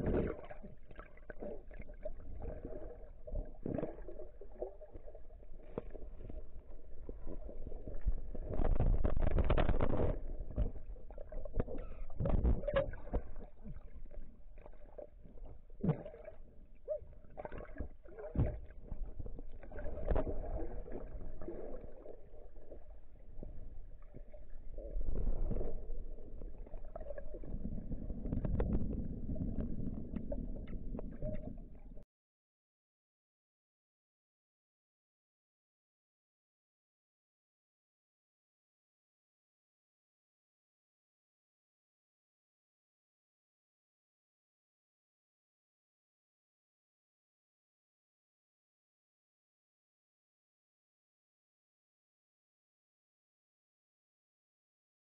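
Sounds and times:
underwater knocks and thuds: 0.0s - 5.0s, 5.6s - 22.4s, 23.2s - 32.0s
underwater water gurgling: 0.0s - 32.0s.

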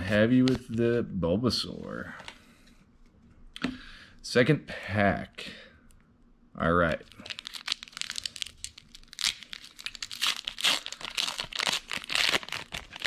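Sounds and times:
foil wrapper tearing and crinkling: 7.1s - 13.0s.

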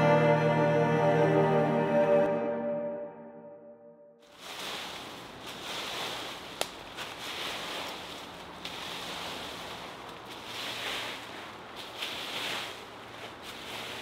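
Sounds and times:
rake sweeping dry leaves: 4.2s - 14.0s.

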